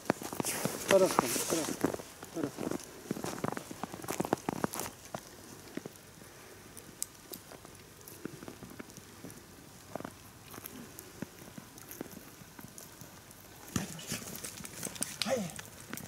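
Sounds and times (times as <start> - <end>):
twigs snapping: 0.0 - 6.1, 9.9 - 16.0
footsteps crackling in undergrowth: 0.0 - 16.0
dog rustling in undergrowth: 0.2 - 5.7.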